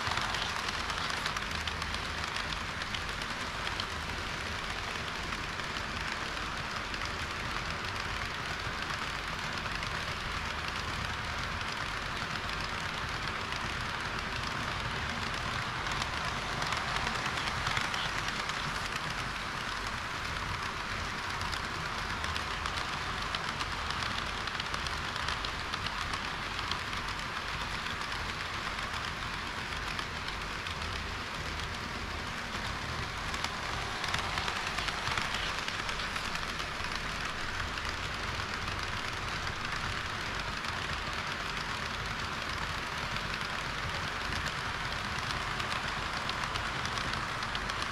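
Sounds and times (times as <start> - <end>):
clicks at rail joints: 0.0 - 47.9
model train wheels rattling: 0.0 - 47.9.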